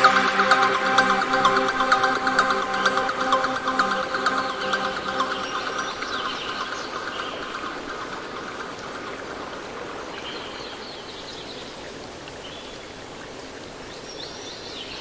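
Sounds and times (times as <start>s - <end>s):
music track: 0.0s - 8.8s
stream water rushing: 0.0s - 15.0s
bird chirps: 2.4s - 8.8s.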